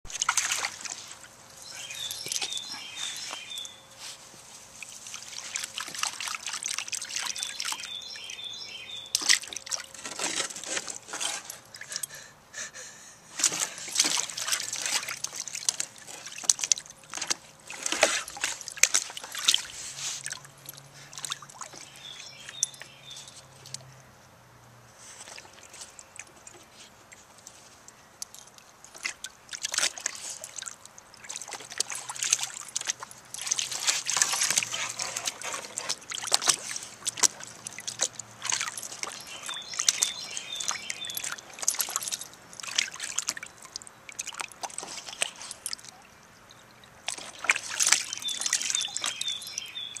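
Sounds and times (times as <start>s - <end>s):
puppy splashing water: 0.1s - 12.1s, 13.3s - 23.9s, 25.0s - 50.0s.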